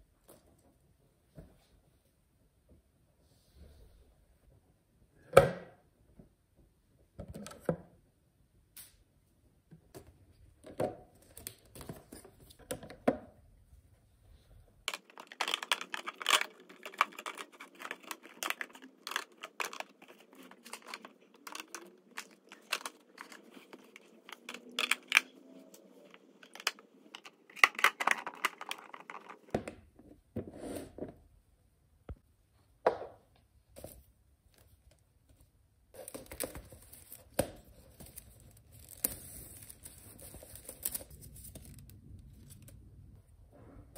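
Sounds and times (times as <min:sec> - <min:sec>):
tearing and crinkling: 0:14.9 - 0:25.4, 0:36.0 - 0:42.7
objects clicking and tapping: 0:14.9 - 0:29.8.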